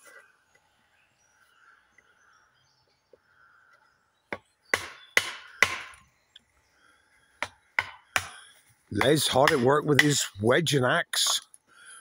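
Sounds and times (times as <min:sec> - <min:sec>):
axe striking steel wedge: 0:04.8 - 0:06.0, 0:09.0 - 0:10.2.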